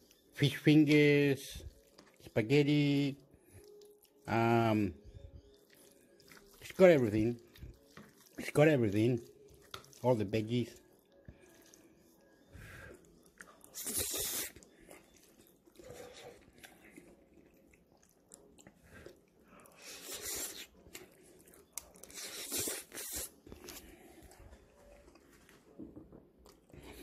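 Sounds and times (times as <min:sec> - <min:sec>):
person chewing: 0:01.7 - 0:02.2, 0:03.2 - 0:04.2, 0:05.0 - 0:08.4, 0:09.2 - 0:10.0, 0:10.8 - 0:25.5.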